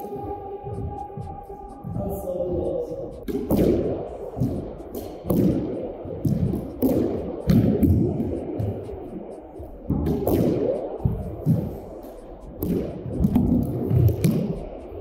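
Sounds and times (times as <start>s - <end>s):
squash ball smacks: 3.3s - 8.7s, 9.9s - 10.7s, 12.6s - 14.6s.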